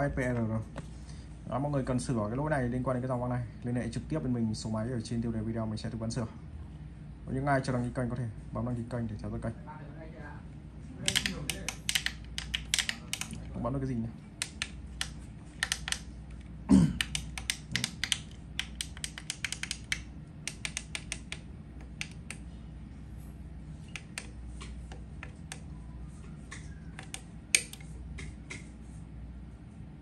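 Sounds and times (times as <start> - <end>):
push buttons clicking: 11.1 - 13.5, 14.4 - 22.4, 23.9 - 25.7, 26.5 - 28.7.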